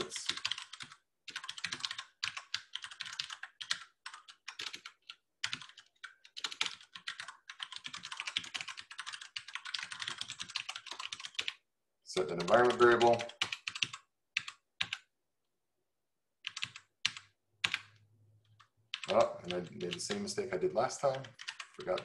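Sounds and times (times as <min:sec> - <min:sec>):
fast typing on keyboard: 0:00.0 - 0:11.6, 0:12.2 - 0:15.0, 0:16.4 - 0:22.0.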